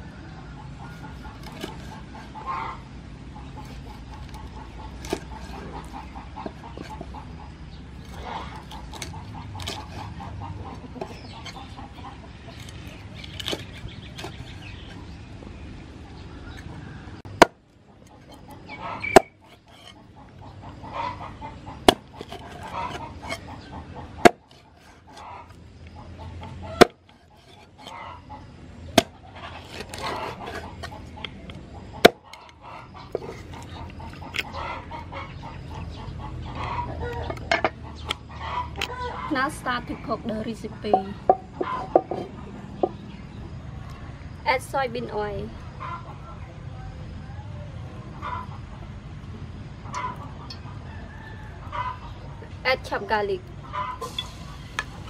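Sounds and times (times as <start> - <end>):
chickens clucking: 0.0 - 55.0
cleaver chopping on wooden board: 17.4 - 17.6, 19.0 - 19.9, 21.8 - 23.4, 24.2 - 24.6, 26.8 - 27.6, 28.9 - 31.0.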